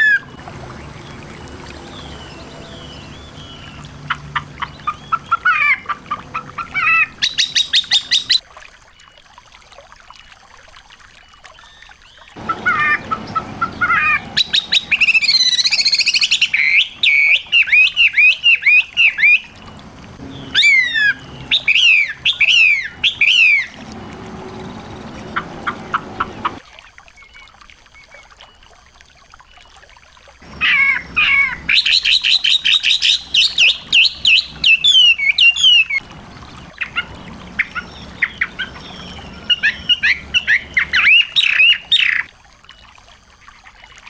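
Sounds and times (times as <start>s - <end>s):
songbirds chirping and trilling: 0.0s - 8.4s, 12.2s - 26.6s, 30.4s - 42.8s
bird notes sweeping downward: 12.4s - 26.6s, 30.5s - 42.2s.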